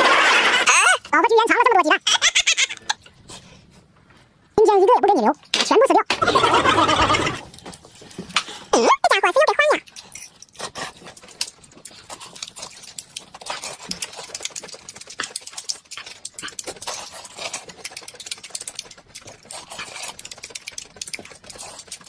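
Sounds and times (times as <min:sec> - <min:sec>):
people chewing and lip smacking: 0:06.2 - 0:08.7, 0:09.8 - 0:22.0.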